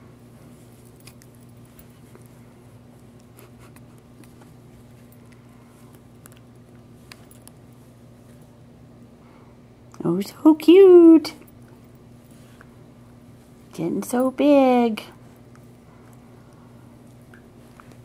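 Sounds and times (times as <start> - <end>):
soft rustling of toy: 0.1 - 8.7.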